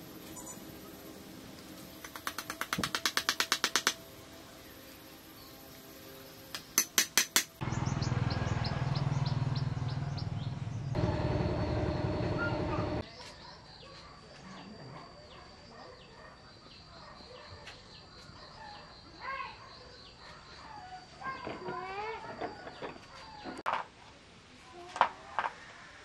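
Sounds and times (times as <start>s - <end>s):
small birds chirping: 7.6s - 21.4s
machine running loudly: 10.9s - 13.0s.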